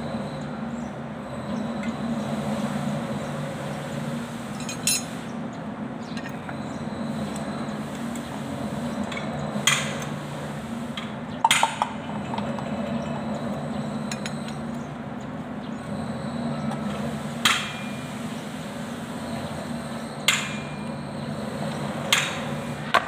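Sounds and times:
wrench clinking on metal: 4.6s - 5.1s.

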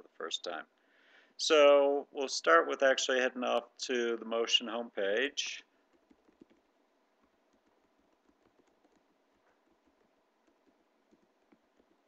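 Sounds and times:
faint keyboard typing: 5.6s - 12.0s.

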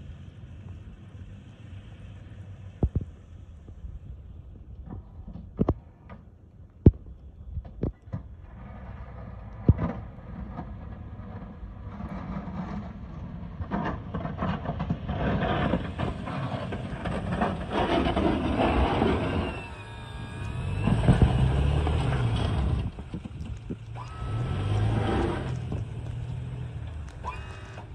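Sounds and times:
truck engine under load: 0.0s - 27.9s
plow blade scraping snow: 8.2s - 27.9s.

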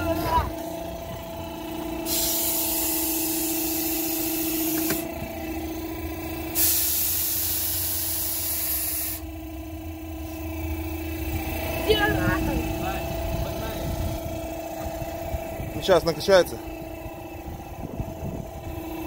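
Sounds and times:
air compressor engine humming: 0.0s - 19.0s
compressed air hissing through sand: 2.0s - 5.1s, 6.5s - 9.3s.

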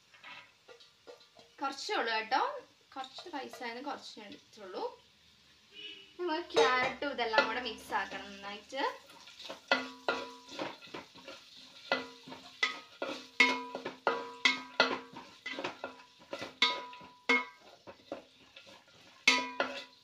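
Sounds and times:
pot ringing: 6.5s - 7.7s, 13.4s - 15.6s, 16.6s - 17.6s, 19.3s - 20.0s
wooden spatula knocking pot: 6.5s - 8.4s, 9.4s - 20.0s.

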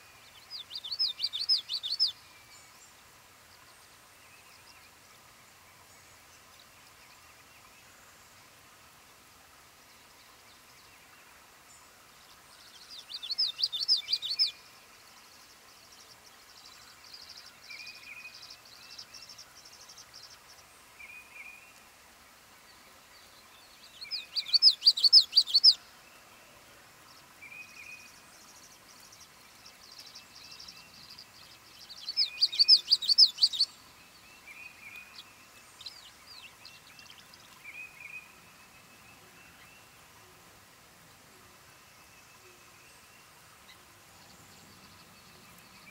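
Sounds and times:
bird chirps: 0.3s - 2.2s, 12.8s - 14.6s, 23.8s - 25.8s, 29.2s - 33.8s
songbird warbling: 0.5s - 2.2s, 12.8s - 14.6s, 23.8s - 25.8s, 27.4s - 38.4s.

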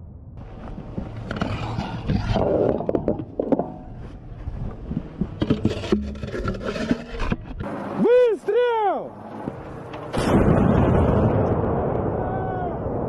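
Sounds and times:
metal clanks and scraping: 5.3s - 7.7s.

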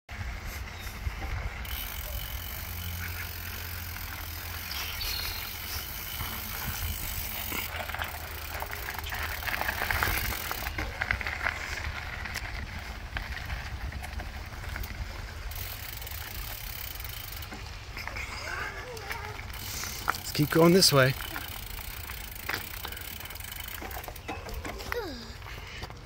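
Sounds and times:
bicycle tyres on dirt: 0.1s - 26.0s
bike rattles and clicks: 0.1s - 26.0s
wind rumbling on microphone: 5.0s - 7.6s, 9.1s - 15.5s.

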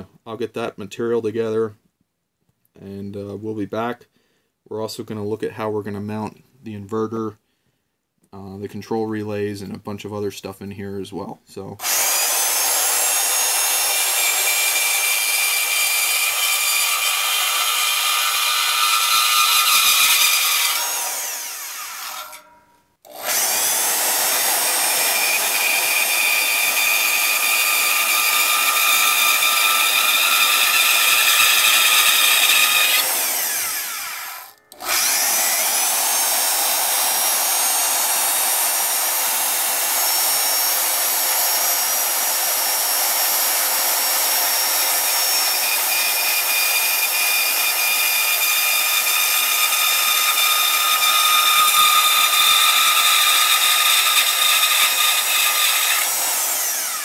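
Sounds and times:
power saw cutting metal: 11.8s - 57.0s.

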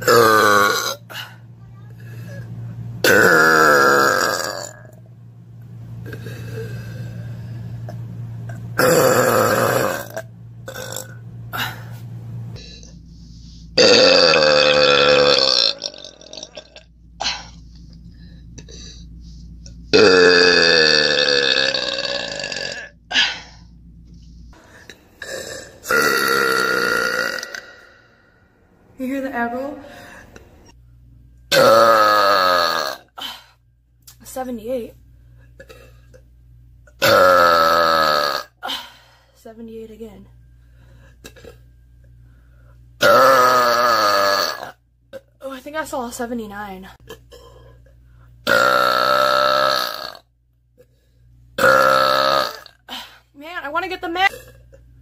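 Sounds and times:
woman burping loudly: 0.0s - 1.4s, 3.0s - 5.0s, 8.5s - 11.8s, 13.8s - 17.6s, 19.9s - 23.5s, 25.2s - 28.2s, 31.5s - 33.4s, 37.0s - 38.8s, 43.0s - 45.3s, 48.4s - 50.3s, 51.6s - 53.2s, 54.2s - 54.8s.

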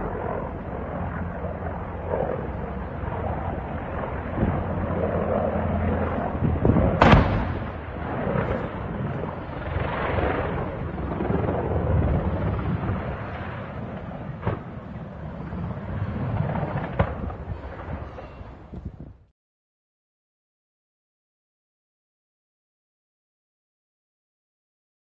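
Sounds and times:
steady low rumble: 0.0s - 19.2s
rolling rumble: 2.5s - 19.1s
loud explosion blast: 6.5s - 8.8s.

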